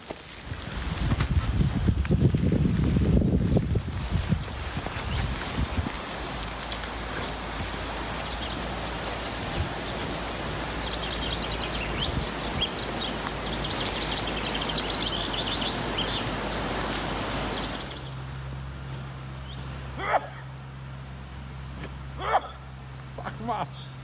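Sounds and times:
steady rushing noise: 0:00.0 - 0:22.2
songbird trilling: 0:08.0 - 0:18.1.

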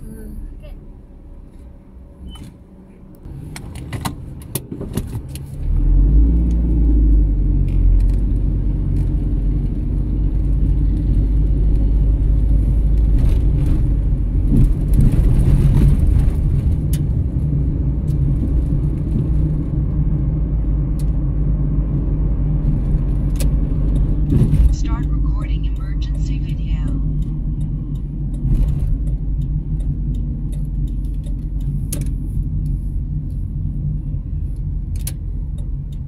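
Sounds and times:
car engine and road rumble: 0:00.0 - 0:36.0
sharp clicks and rattles: 0:22.6 - 0:33.3.

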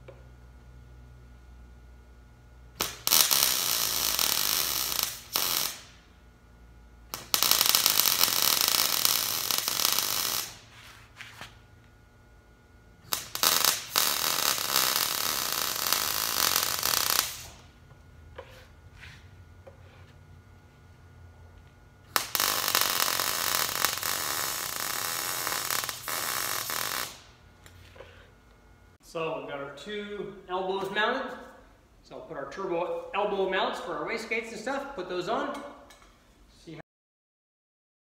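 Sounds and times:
workshop hum: 0:00.0 - 0:36.8
welding arc crackling: 0:02.6 - 0:12.0, 0:12.8 - 0:17.8, 0:21.6 - 0:28.2.

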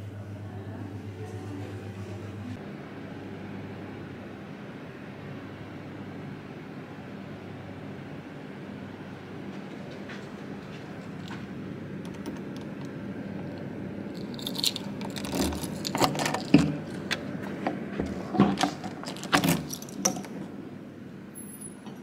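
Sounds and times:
steady low hum: 0:00.0 - 0:22.0
keys jangling: 0:14.2 - 0:16.4, 0:19.1 - 0:20.0.

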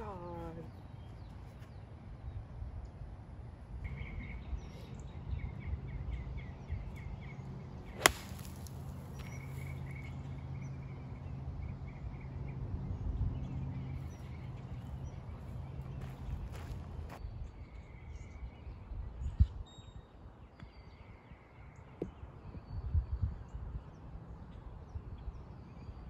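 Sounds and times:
bird chirping: 0:03.9 - 0:22.9
golf club striking ball: 0:07.9 - 0:09.4.

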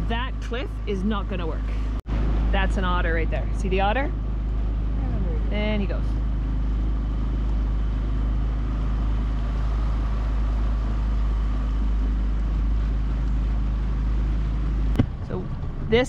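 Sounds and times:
outboard motor running: 0:00.0 - 0:16.0.

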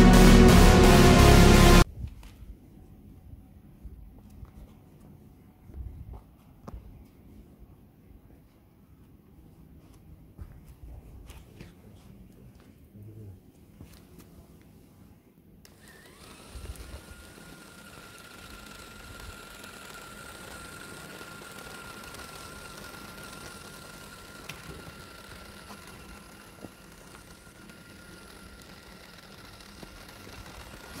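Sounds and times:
toy car motors whining: 0:15.7 - 0:31.0.

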